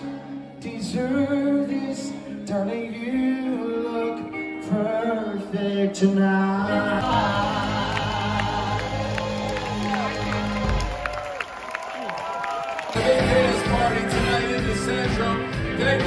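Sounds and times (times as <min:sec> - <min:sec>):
pop song with lead singer: 0:00.0 - 0:09.5, 0:12.9 - 0:16.0.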